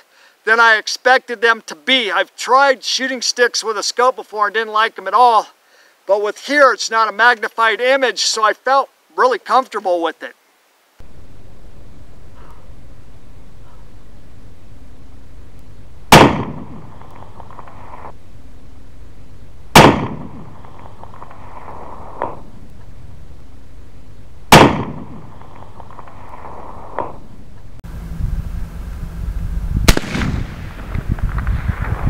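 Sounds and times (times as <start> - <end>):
gusty wind rumble: 11.0 - 32.0
rifle shots with echo: 16.1 - 17.0, 19.7 - 22.4, 24.5 - 27.2, 29.9 - 30.9.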